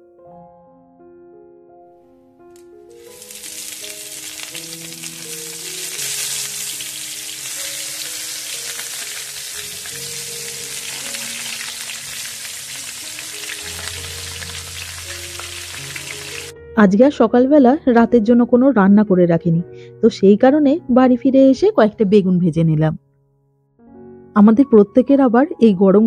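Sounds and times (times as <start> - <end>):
soft background melody: 0.0 - 26.0
vegetables sizzling in hot oil: 3.0 - 16.5.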